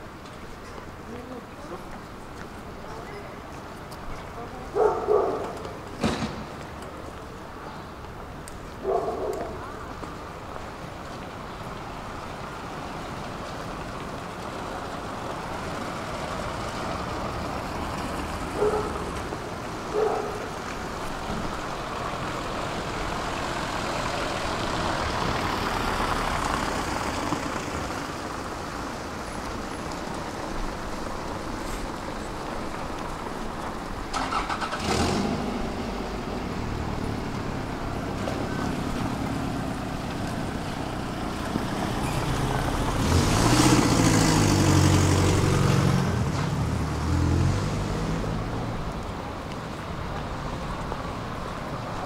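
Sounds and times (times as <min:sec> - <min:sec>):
vehicles passing: 0:00.0 - 0:52.0
heavy vehicle engine drone: 0:30.2 - 0:52.0.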